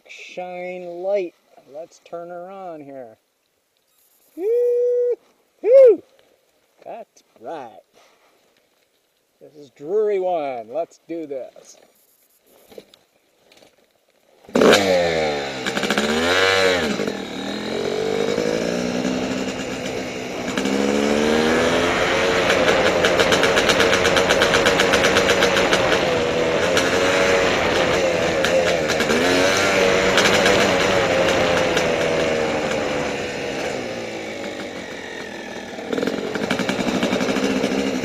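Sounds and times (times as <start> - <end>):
dirt bike engine revving: 14.5 - 38.0.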